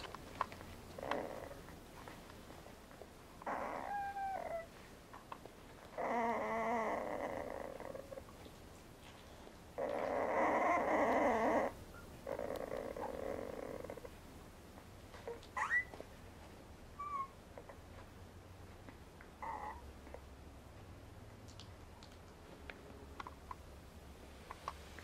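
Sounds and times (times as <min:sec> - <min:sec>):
puppies squeaking and whimpering: 0:01.0 - 0:01.7, 0:03.4 - 0:04.7, 0:05.9 - 0:08.2, 0:09.8 - 0:14.2, 0:15.1 - 0:16.1, 0:17.0 - 0:17.8, 0:19.4 - 0:19.8.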